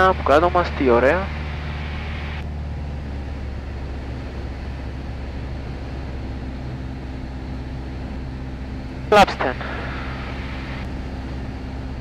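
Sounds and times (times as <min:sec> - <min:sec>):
airplane engine drone in cockpit: 0:00.0 - 0:12.0.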